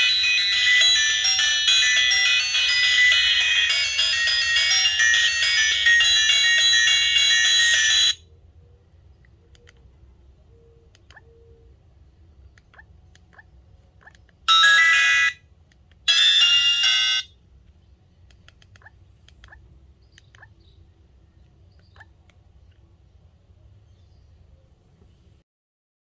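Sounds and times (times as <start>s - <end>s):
phone ringtone melody: 0.0s - 8.3s, 14.5s - 15.4s, 16.1s - 17.4s.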